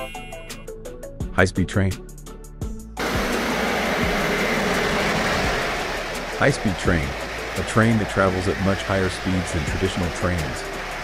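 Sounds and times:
faint high whine: 3.0 - 9.6
train rushing past: 3.0 - 11.0.

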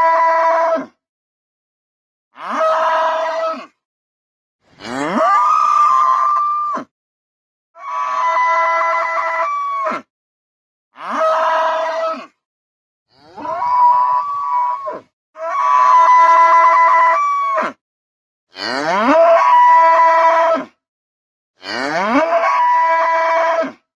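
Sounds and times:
cow bellowing: 4.7 - 6.6, 13.1 - 17.8, 18.5 - 20.6, 21.6 - 23.8.

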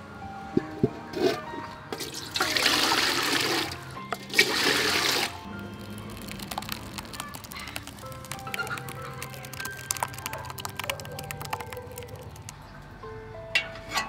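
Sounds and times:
water poured into metal pot: 1.9 - 12.6.

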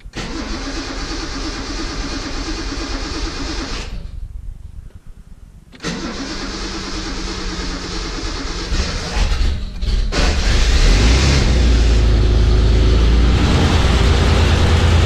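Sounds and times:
engine cranking on starter motor: 0.0 - 4.2, 5.8 - 12.2.

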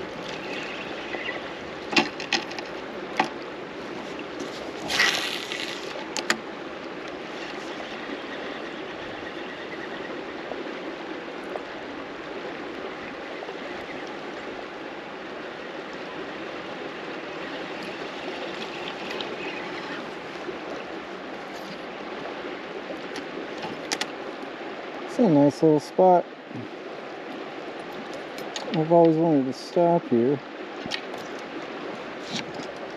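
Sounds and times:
river current rushing: 0.0 - 32.9.

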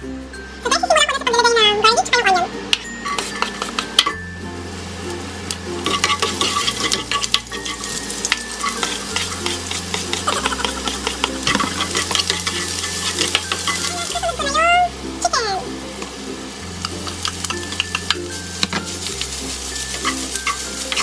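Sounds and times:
garlic and onion sizzling in oil: 0.5 - 21.0
spatula scraping a pan: 3.0 - 4.2, 5.8 - 14.5, 16.8 - 21.0.

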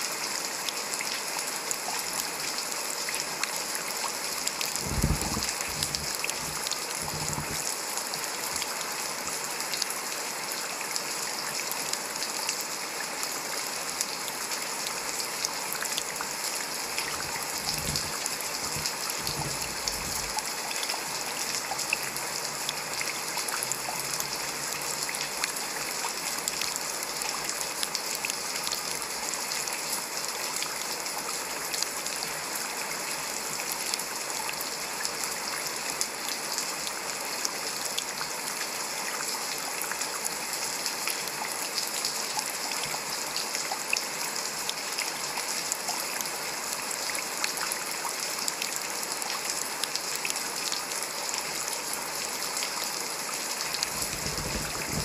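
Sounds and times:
heavy rain falling: 0.2 - 38.6, 51.5 - 55.0.

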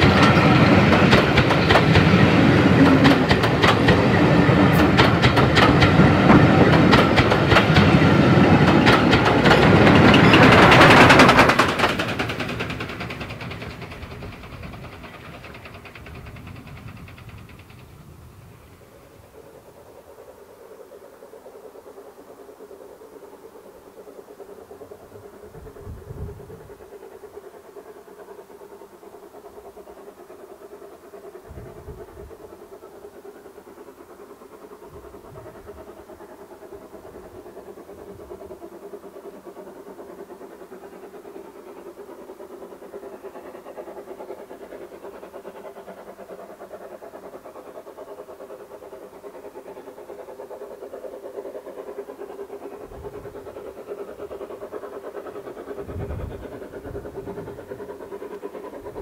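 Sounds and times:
wind rumble on microphone: 25.5 - 26.7, 31.5 - 32.4, 55.8 - 57.6.

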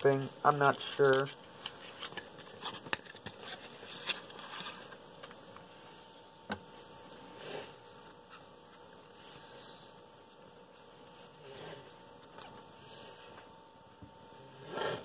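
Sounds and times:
cards rustling and clicking: 0.5 - 5.4.

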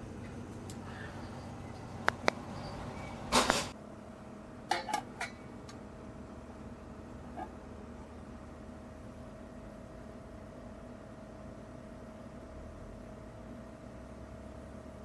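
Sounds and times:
metal cookpot clinking: 4.7 - 5.4.

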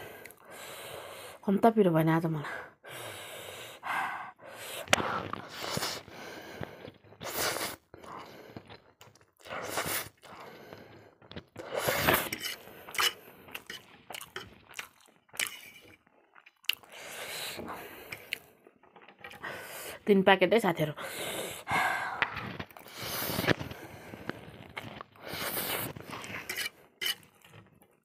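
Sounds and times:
noodles slurped: 4.8 - 18.7, 22.4 - 27.5
chewing: 6.6 - 19.6, 22.4 - 28.0.

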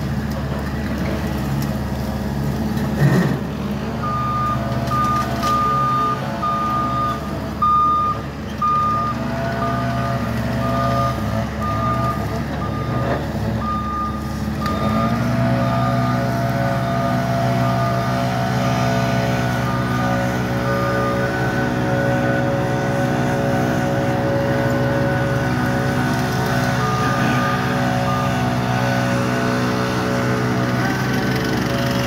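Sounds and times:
diesel engine running: 0.0 - 32.0
backup alarm beeping: 4.0 - 9.8.

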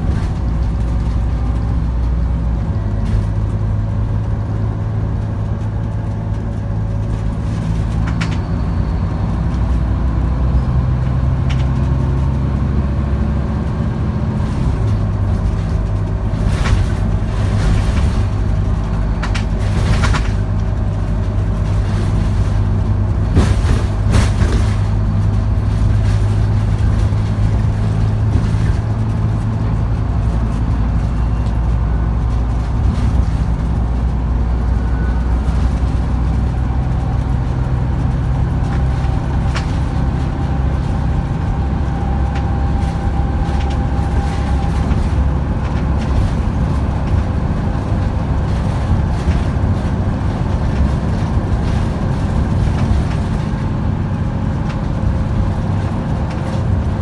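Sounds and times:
body rattles and clunks: 0.0 - 57.0
bus diesel engine running: 0.0 - 57.0.

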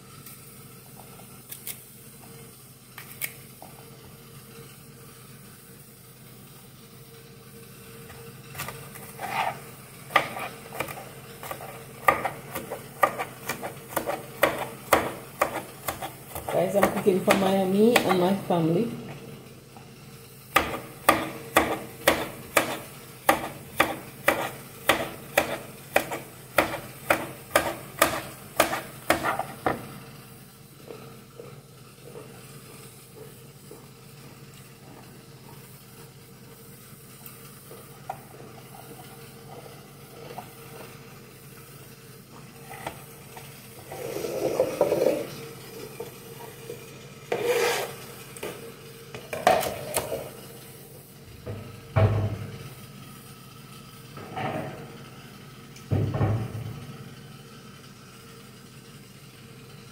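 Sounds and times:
knife chopping on cutting board: 8.6 - 18.3, 20.6 - 29.9
rustling scraping sounds: 9.0 - 9.7, 47.3 - 48.1.

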